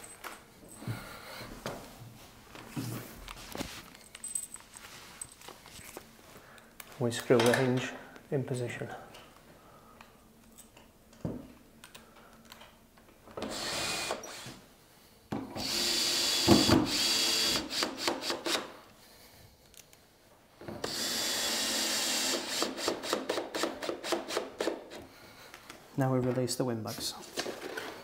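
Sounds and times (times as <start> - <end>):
cordless drill driving screws: 13.4 - 14.6, 15.6 - 18.7, 20.8 - 25.0.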